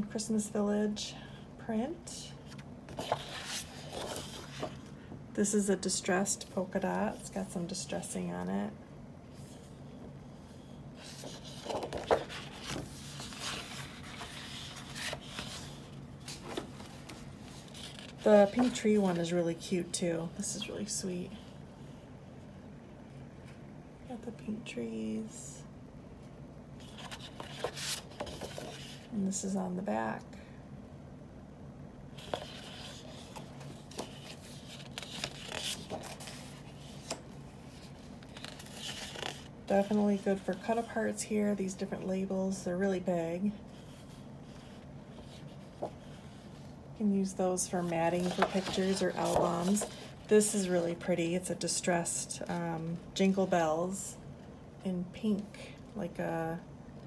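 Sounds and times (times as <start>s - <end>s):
paper sheets rustling: 2.5s - 4.9s, 11.0s - 19.3s, 32.2s - 41.0s, 47.6s - 50.8s.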